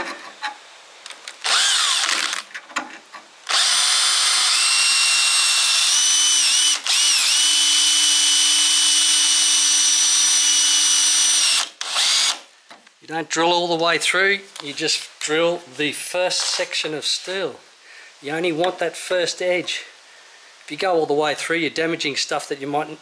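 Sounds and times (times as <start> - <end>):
power drill drilling into steel: 1.4 - 2.5, 3.5 - 12.4.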